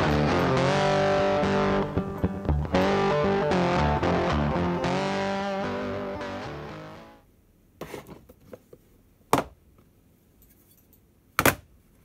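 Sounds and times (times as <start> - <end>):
bass line: 0.0 - 7.2
guitar background music: 0.0 - 7.2.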